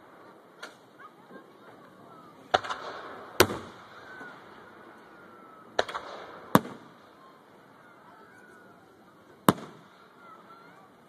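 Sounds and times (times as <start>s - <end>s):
firework crackling: 0.0s - 11.0s
firework shells bursting: 2.5s - 7.8s, 9.4s - 10.2s.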